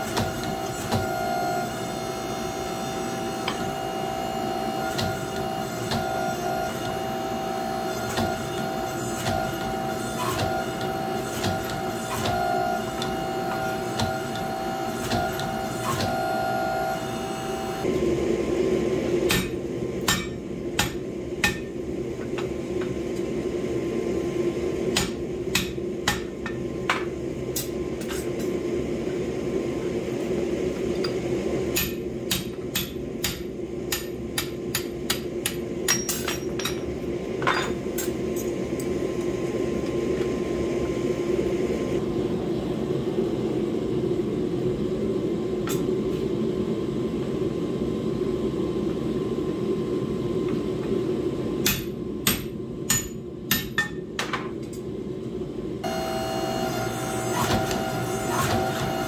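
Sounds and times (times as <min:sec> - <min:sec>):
hammer ringing on hot steel: 0:19.3 - 0:21.7, 0:31.8 - 0:36.8.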